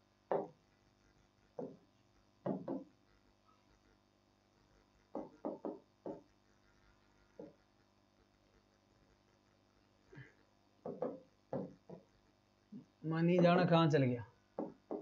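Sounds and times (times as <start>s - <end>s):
chalk knocking on blackboard: 0.3s - 0.6s, 1.6s - 1.8s, 2.4s - 2.9s, 5.1s - 6.3s, 7.4s - 7.6s, 10.8s - 12.1s, 14.6s - 15.0s.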